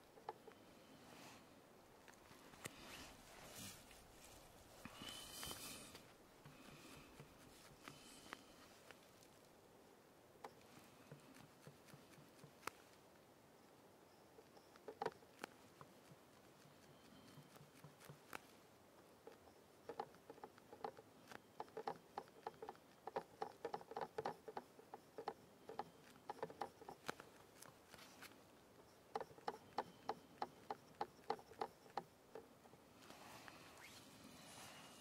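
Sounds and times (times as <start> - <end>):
paint brush dabbing on canvas: 2.7 - 9.4, 10.5 - 13.0.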